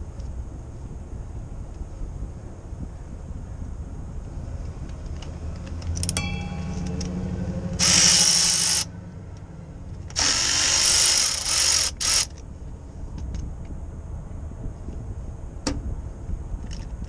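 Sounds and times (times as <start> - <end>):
low steady hum: 0.0 - 17.0
metallic clicks: 4.8 - 10.2
power ratchet running: 7.7 - 8.9, 10.1 - 12.4.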